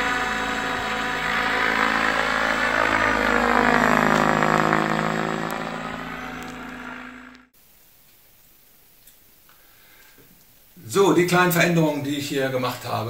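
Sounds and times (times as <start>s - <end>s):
rc helicopter rotor whine: 0.0s - 7.5s.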